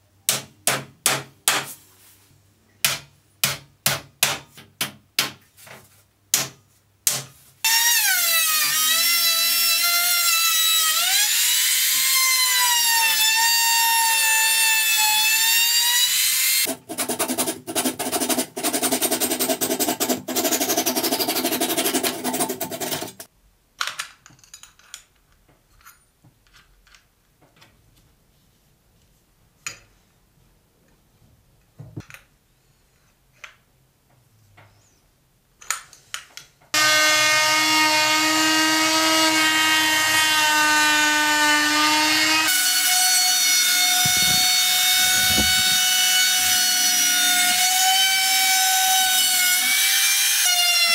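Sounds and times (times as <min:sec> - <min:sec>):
electric drill whining: 0:42.4 - 0:47.8.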